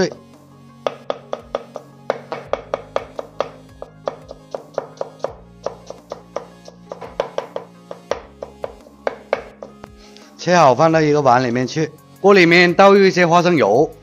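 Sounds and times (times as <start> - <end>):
background music: 0.0 - 14.0
knife chopping on wooden board: 0.8 - 9.9.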